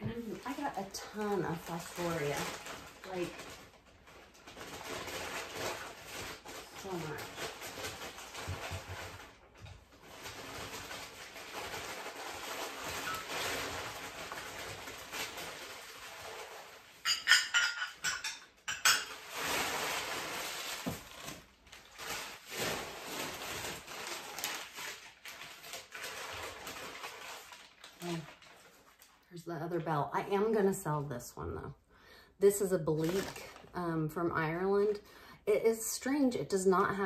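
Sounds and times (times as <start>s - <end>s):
packing paper rustling: 0.0s - 17.6s, 19.1s - 29.4s, 32.7s - 33.8s.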